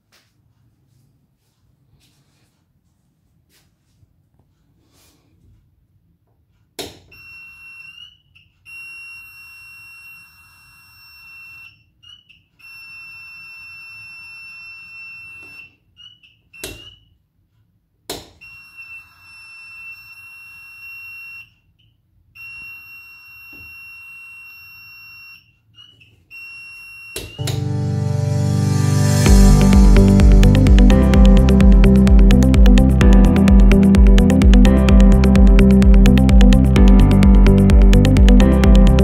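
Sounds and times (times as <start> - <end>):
high steady electronic tone: 27.4 - 39.0.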